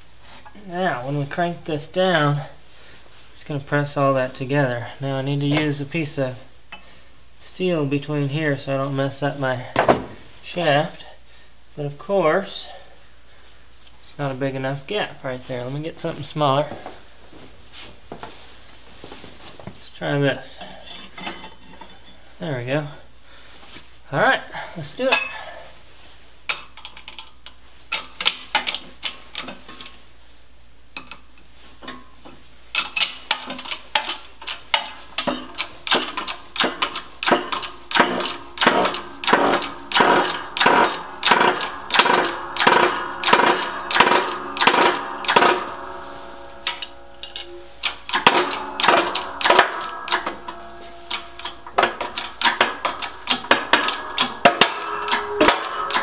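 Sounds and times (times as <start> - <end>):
press handle metallic clanks: 32.7 - 56.0.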